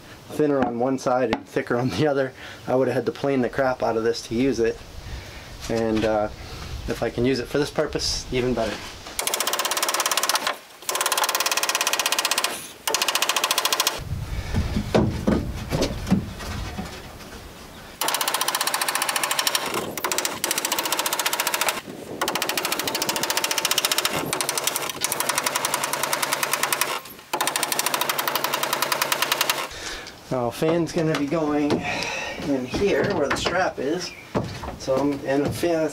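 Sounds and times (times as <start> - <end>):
impact driver hammering screws: 9.2 - 14.0, 18.0 - 29.7
dull knocks and rumble: 14.1 - 17.5, 34.3 - 35.8.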